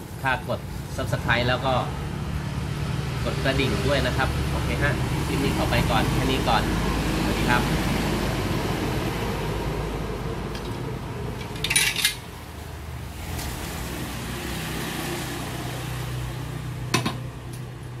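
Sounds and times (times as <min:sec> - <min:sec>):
metal clank on workbench: 0:16.9 - 0:17.2.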